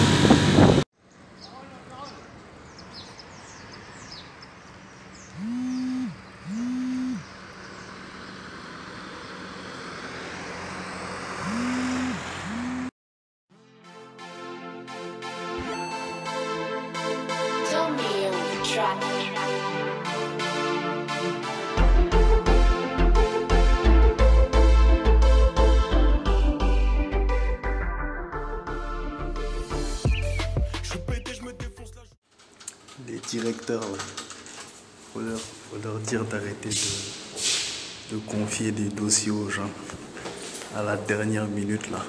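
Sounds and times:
sustained synth chords: 14.6s - 17.8s
electronic beat with deep bass: 30.0s - 32.1s.

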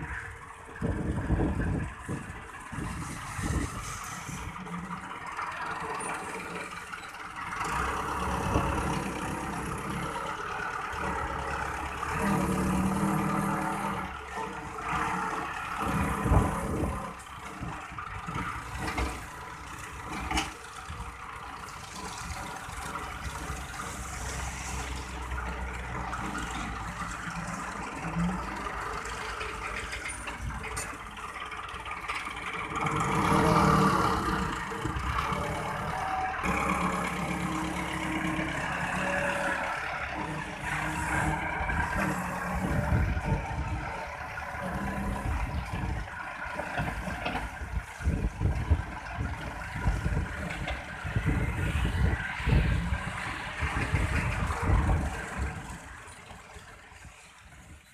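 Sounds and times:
tractor diesel engine revving: 0.0s - 57.8s.

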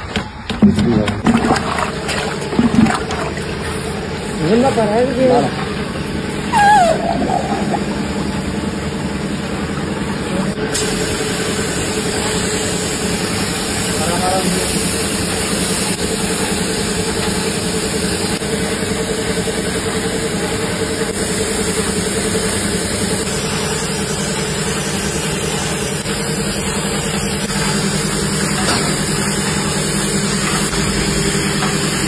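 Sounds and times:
low machine hum: 0.0s - 13.9s
spray gun hissing: 10.7s - 18.4s.

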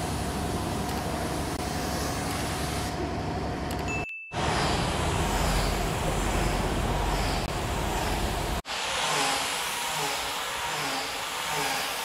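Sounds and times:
spray gun hissing: 1.2s - 3.0s, 4.4s - 12.0s.

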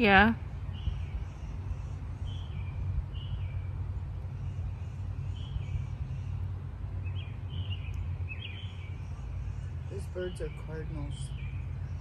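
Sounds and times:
steady low rumble: 0.0s - 12.0s
bird whistled song: 7.0s - 12.0s.

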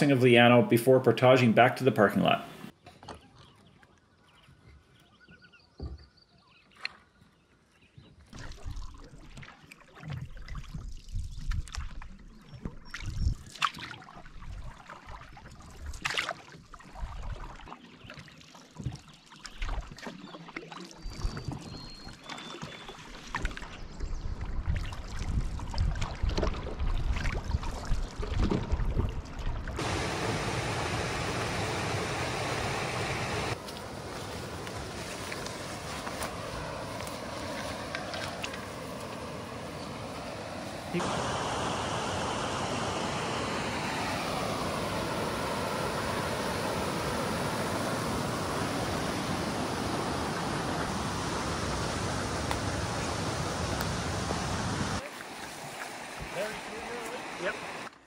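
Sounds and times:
paddle splashing in water: 8.3s - 58.0s
loud rushing noise: 29.8s - 33.6s, 38.7s - 52.4s.

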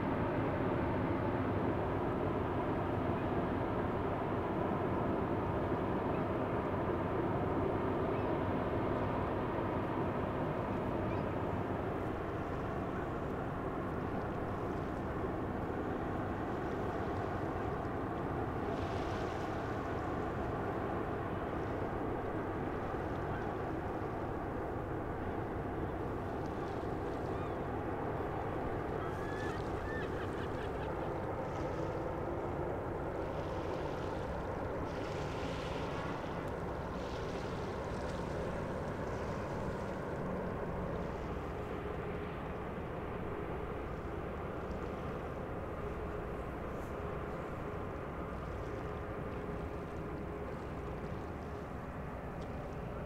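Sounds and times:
ship engine rumble: 0.0s - 53.0s
water along ship hull: 0.0s - 53.0s
faint bird calls: 28.9s - 31.2s.

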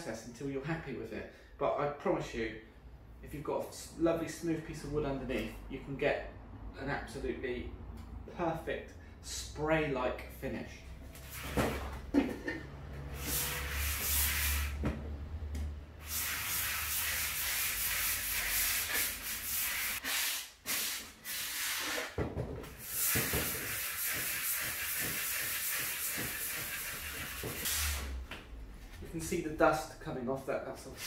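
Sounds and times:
sanding sponge rubbing wood: 16.1s - 20.5s, 22.9s - 28.0s.

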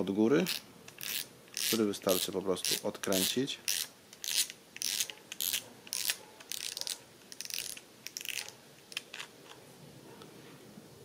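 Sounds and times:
fishing reel drag clicking: 0.5s - 8.4s.

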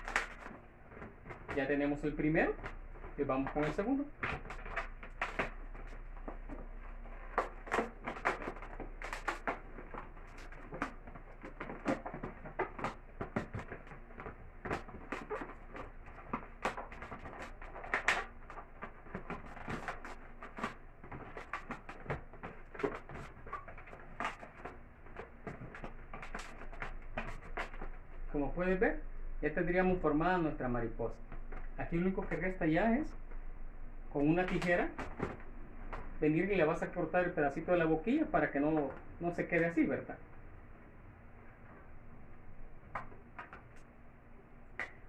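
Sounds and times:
latex balloon squeaking: 0.0s - 27.8s.

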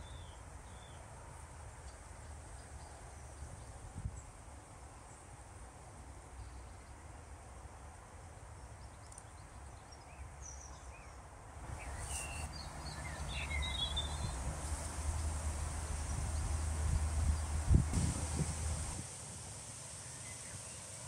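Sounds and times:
faint high hiss: 0.0s - 21.0s
small birds chirping: 8.6s - 19.0s.

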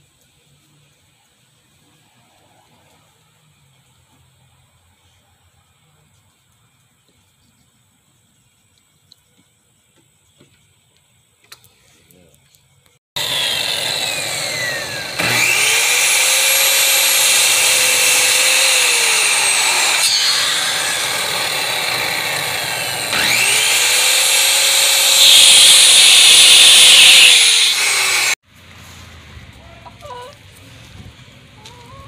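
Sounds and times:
circular saw whining: 13.2s - 28.4s
saw cutting wooden board: 13.2s - 28.4s.

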